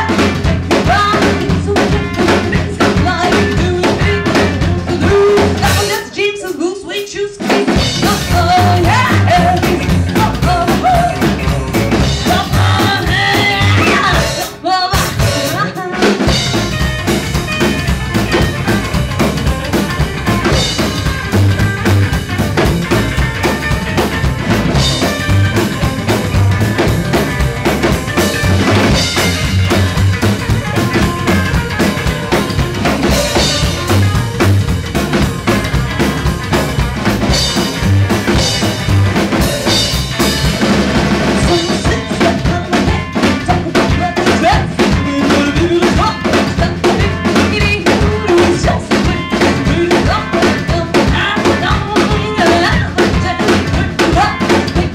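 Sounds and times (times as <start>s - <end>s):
woman singing: 0.0s - 16.6s, 41.4s - 54.9s
rockabilly band playing: 0.0s - 54.9s.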